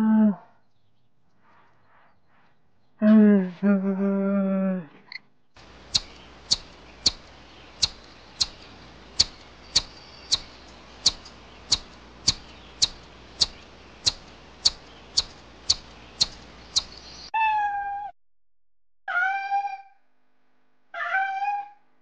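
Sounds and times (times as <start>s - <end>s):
squirrel chirping: 5.6s - 17.3s
cat meowing: 19.1s - 20.0s, 21.0s - 21.8s.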